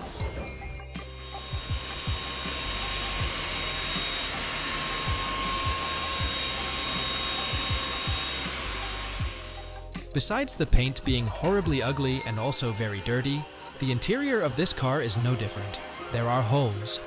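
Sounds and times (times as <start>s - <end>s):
background music: 0.0s - 17.0s
spray tool hissing: 1.0s - 9.8s, 10.7s - 17.0s.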